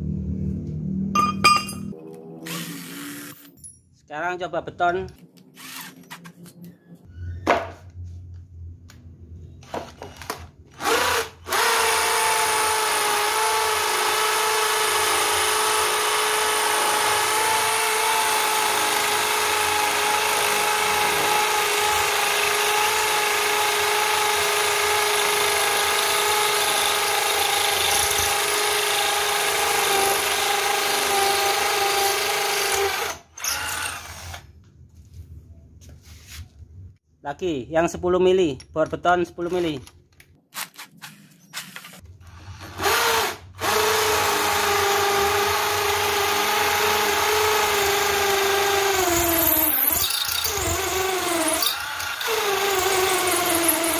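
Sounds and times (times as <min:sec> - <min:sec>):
drill boring into concrete: 0:02.4 - 0:03.5, 0:05.6 - 0:06.2, 0:10.8 - 0:34.5, 0:41.7 - 0:53.9.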